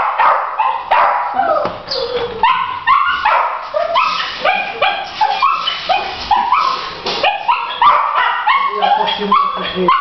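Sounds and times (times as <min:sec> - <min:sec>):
dogs barking: 0:00.0 - 0:10.0.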